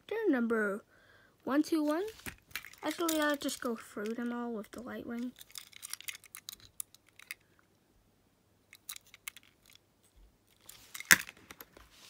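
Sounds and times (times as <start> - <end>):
metal toy car clicking: 5.2 - 7.4, 8.7 - 9.8.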